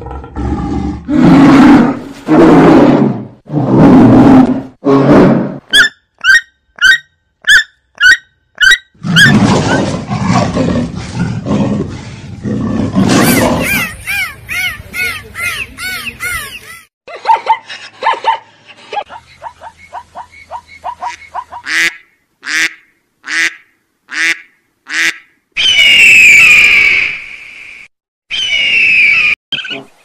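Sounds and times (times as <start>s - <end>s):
loud rough animal call: 9.0s - 14.0s
rising-and-falling animal calls: 13.0s - 16.9s, 28.3s - 29.8s.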